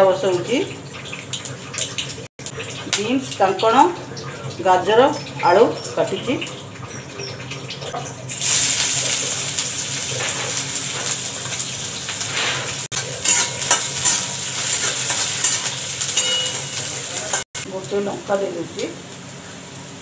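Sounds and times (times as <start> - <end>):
food sizzling in hot oil: 0.0 - 20.0
metal spatula scraping pan: 12.2 - 17.4.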